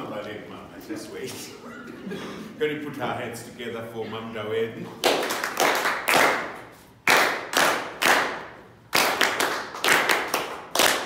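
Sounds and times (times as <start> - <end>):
people clapping in a church: 5.0 - 11.0.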